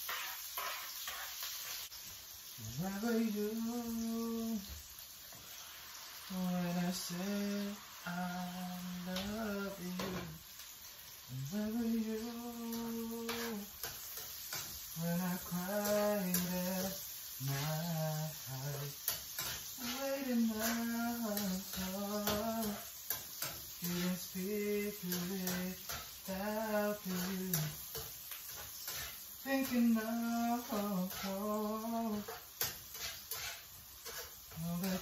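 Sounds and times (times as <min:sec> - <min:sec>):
spatula scraping a pan: 0:00.0 - 0:02.0, 0:12.6 - 0:35.0
food sizzling in a frying pan: 0:00.0 - 0:35.0
person humming a slow tune: 0:02.6 - 0:04.8, 0:06.3 - 0:10.4, 0:11.3 - 0:13.7, 0:15.0 - 0:19.0, 0:19.8 - 0:22.9, 0:23.8 - 0:27.8, 0:29.4 - 0:32.3, 0:34.5 - 0:35.0.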